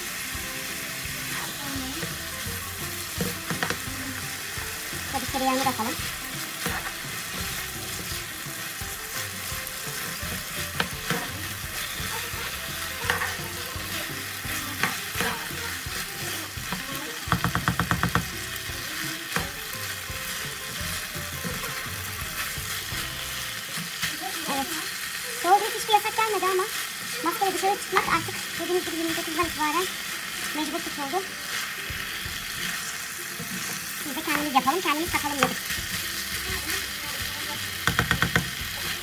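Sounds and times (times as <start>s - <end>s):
rice sizzling in a frying pan: 0.0s - 39.0s
spatula stirring and scraping: 0.3s - 39.0s
spatula clicking against pan: 16.7s - 19.6s, 37.8s - 38.6s
rattle of taps: 17.3s - 18.3s, 37.8s - 38.6s.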